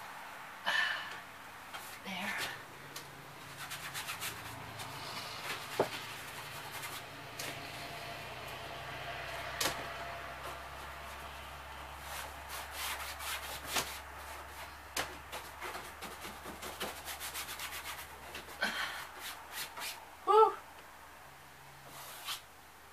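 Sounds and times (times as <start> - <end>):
paintbrush rubbing on wall: 3.4 - 7.9, 11.9 - 20.0, 21.8 - 22.5.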